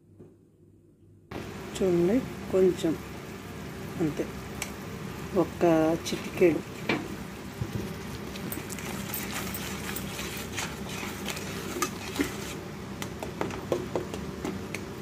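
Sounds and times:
wooden spatula scraping pan: 8.5s - 12.6s.

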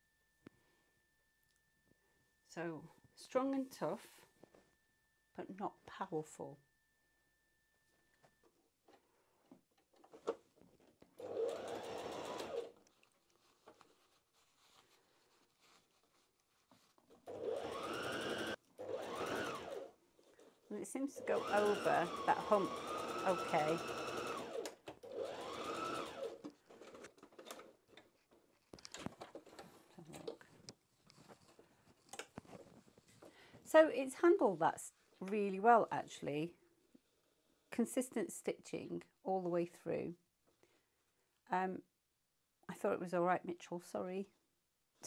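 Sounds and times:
sewing machine stitching: 11.2s - 12.8s, 17.2s - 19.9s, 21.0s - 27.7s.

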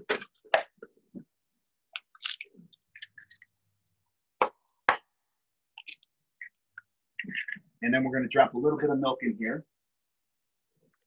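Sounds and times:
eggshells cracking: 1.9s - 3.6s.

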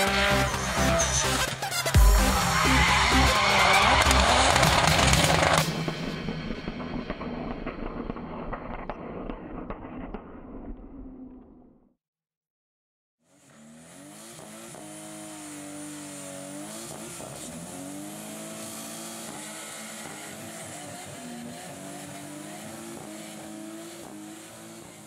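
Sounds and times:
car engine at high revs: 0.0s - 7.6s, 13.2s - 25.0s
tyres squealing: 2.2s - 5.6s.

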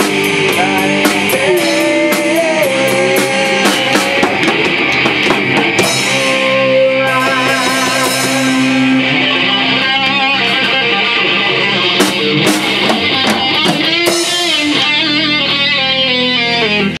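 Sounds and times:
drum and cymbal hits: 0.0s - 9.6s, 12.0s - 15.0s
electric guitars bending notes: 0.0s - 17.0s.

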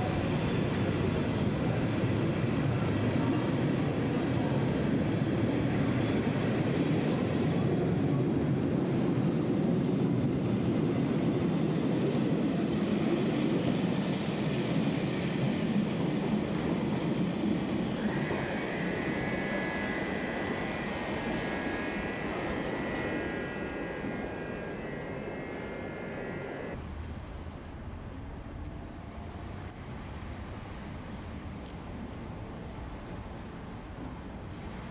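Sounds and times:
train wheels rumbling on rail: 0.0s - 27.2s.

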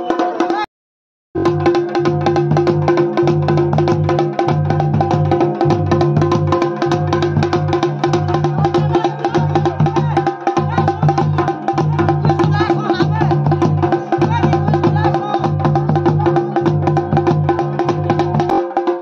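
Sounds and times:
fast drumming: 0.0s - 0.7s, 1.4s - 19.0s.

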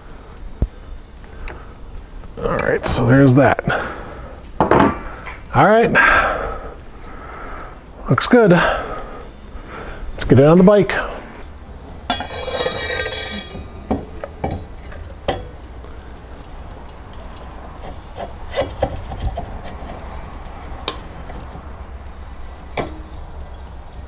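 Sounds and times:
steady low hum: 0.0s - 24.0s
metal parts rattling scrape: 12.1s - 13.7s.

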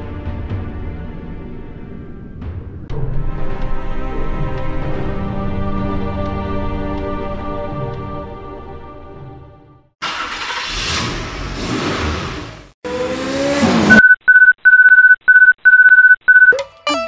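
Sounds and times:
short electronic beeps: 13.9s - 17.0s
plucked guitar tune: 16.5s - 17.0s.

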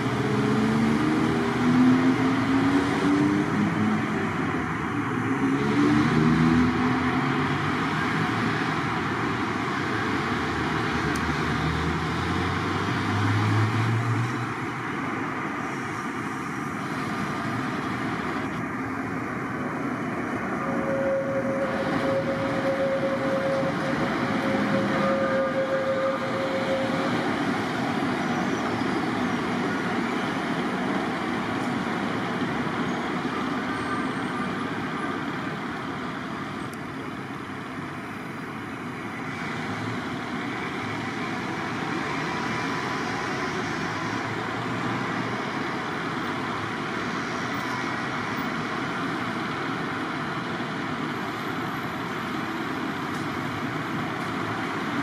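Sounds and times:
passing vehicles rumbling: 0.0s - 55.0s
engine rising in pitch: 4.9s - 8.3s, 19.8s - 29.1s
steady whine: 15.0s - 30.0s.

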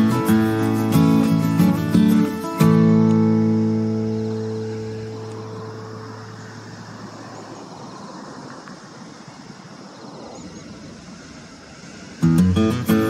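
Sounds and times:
strummed acoustic guitar: 0.0s - 6.4s, 12.2s - 13.0s
outdoor background hiss: 0.0s - 13.0s.

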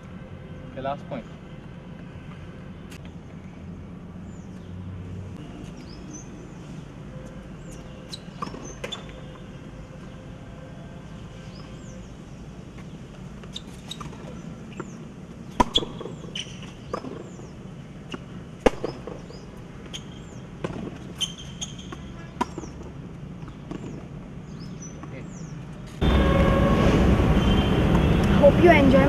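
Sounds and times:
birds chirping: 0.3s - 26.3s
tennis balls struck by rackets: 8.2s - 9.3s, 13.8s - 24.1s.

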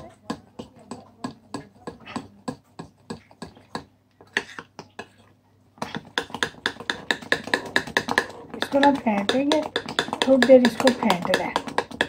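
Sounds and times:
spoon scraping against bowl: 3.2s - 5.3s.

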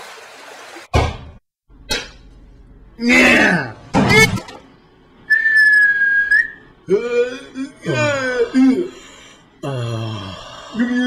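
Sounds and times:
whistled note: 5.3s - 6.6s
breathy grunts: 6.9s - 11.0s
voiced vocal sound: 6.9s - 11.0s.

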